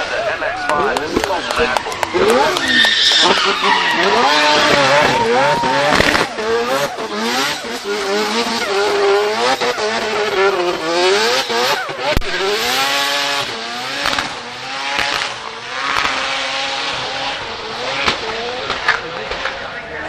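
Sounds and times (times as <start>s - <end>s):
rotary engine revving: 0.0s - 20.0s
tyre noise: 0.0s - 20.0s
sharp crack: 0.6s - 6.4s, 14.0s - 16.4s.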